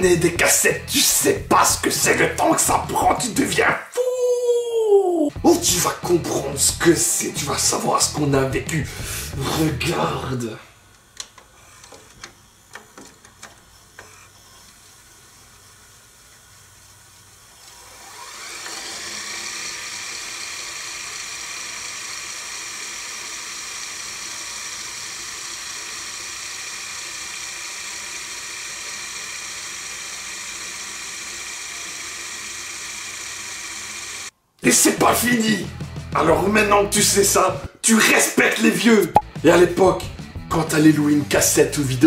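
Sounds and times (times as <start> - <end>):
rewind motor whirring: 9.0 - 34.4.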